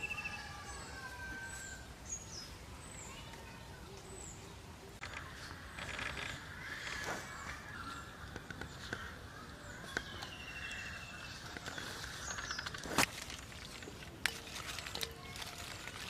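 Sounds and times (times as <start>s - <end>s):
bird trill: 0.0s - 3.2s, 9.8s - 12.8s
birds chirping: 0.0s - 16.0s.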